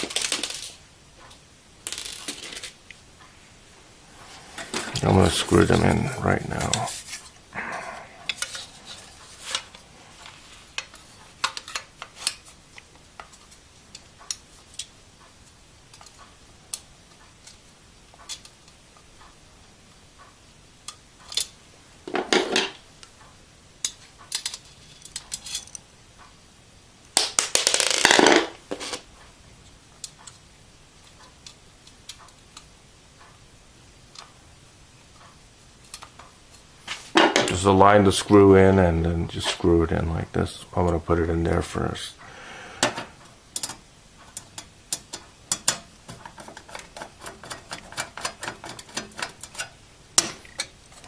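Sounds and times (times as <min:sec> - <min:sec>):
screws and screwdriver clinking on metal: 0:23.8 - 0:25.8, 0:43.6 - 0:51.0.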